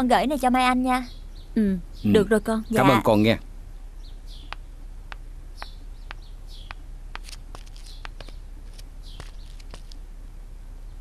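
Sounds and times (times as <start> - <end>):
small birds chirping: 0.0 - 10.2, 10.8 - 11.0
low steady background hum: 0.0 - 11.0
footsteps on pavement: 7.2 - 10.0.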